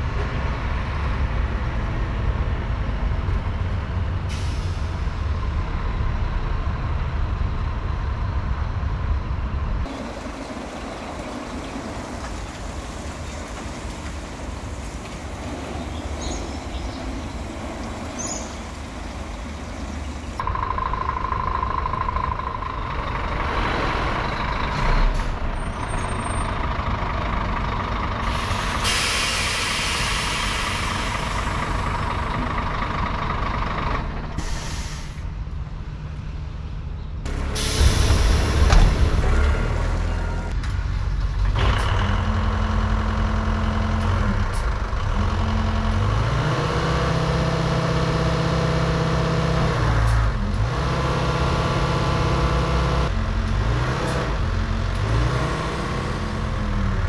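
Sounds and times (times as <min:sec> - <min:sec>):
heavy truck engine rumble: 0:00.0 - 0:57.0
air brake hissing: 0:04.3 - 0:05.0, 0:28.2 - 0:31.8, 0:34.4 - 0:35.3, 0:37.4 - 0:38.7.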